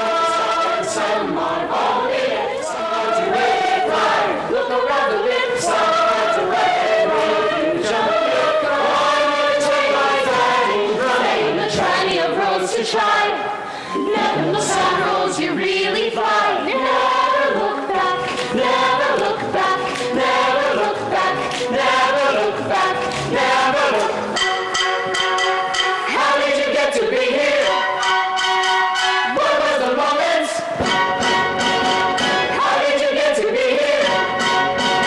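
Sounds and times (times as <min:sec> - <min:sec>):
chorus of men and women singing: 0:00.0 - 0:24.6, 0:25.7 - 0:35.0
pit orchestra: 0:00.0 - 0:35.0.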